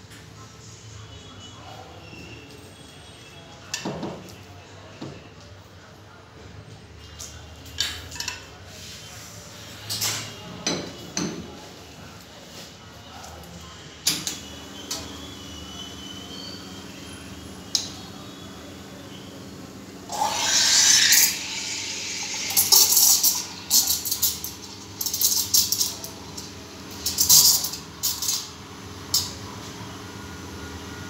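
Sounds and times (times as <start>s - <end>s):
espresso machine hum: 14.3s - 31.0s
steam wand hissing: 20.1s - 24.4s.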